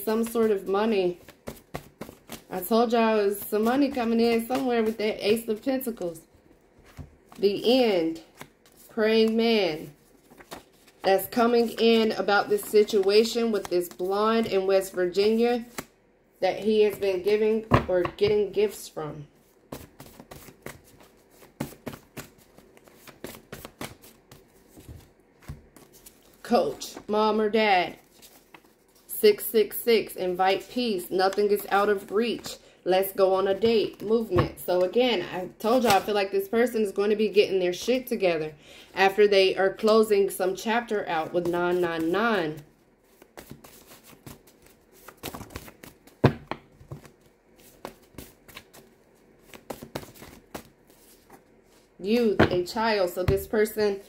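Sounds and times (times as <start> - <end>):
cards being shuffled: 0.2 - 7.5, 8.1 - 14.6, 15.2 - 15.9, 19.4 - 27.1, 28.0 - 29.1, 41.3 - 52.9.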